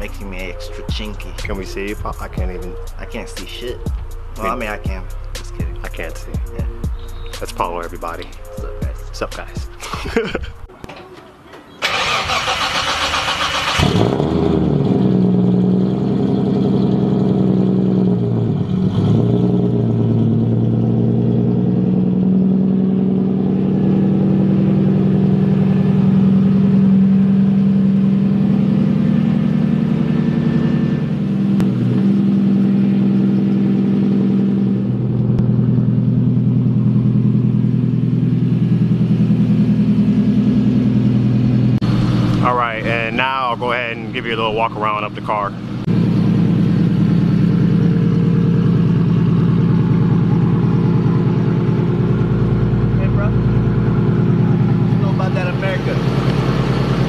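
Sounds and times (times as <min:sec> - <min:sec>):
car engine idling: 0:00.0 - 0:10.7, 0:11.8 - 0:57.0
car engine starting: 0:00.0 - 0:10.7, 0:11.8 - 0:57.0.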